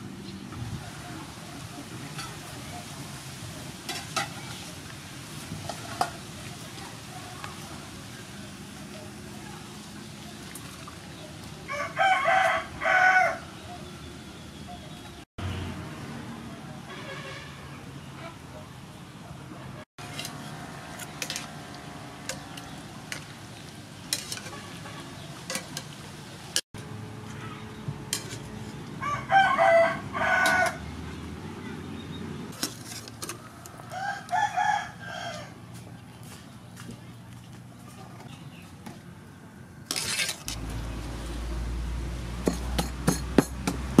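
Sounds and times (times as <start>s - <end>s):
rooster crowing: 11.7s - 13.5s, 29.0s - 30.8s, 33.8s - 35.6s.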